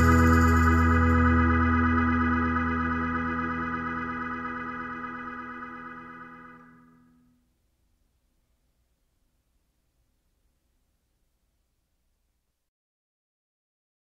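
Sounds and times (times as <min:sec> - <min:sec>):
music long held chord: 0:00.0 - 0:07.0.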